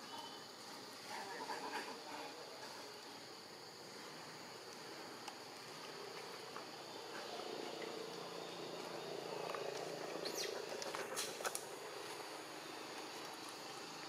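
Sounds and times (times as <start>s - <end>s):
insect drone: 0.0s - 14.0s
monkey calling: 10.1s - 11.2s.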